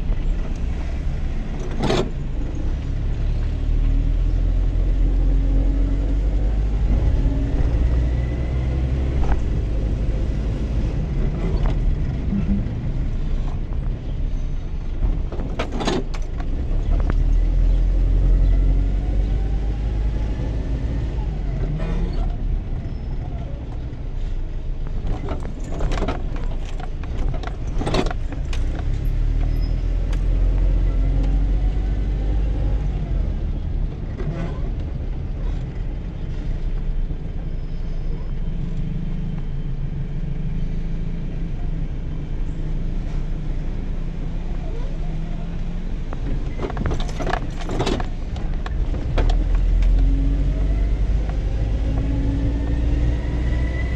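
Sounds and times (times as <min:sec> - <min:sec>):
engine and road rumble: 0:00.0 - 0:53.9
knocks and rattles: 0:46.2 - 0:50.0.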